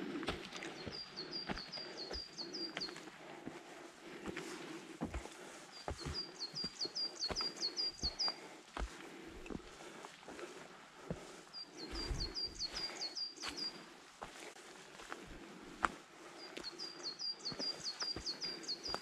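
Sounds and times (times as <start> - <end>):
outdoor background noise: 0.0 - 19.0
small songbird singing: 0.7 - 3.1, 5.7 - 8.5, 11.5 - 13.9, 16.4 - 19.0.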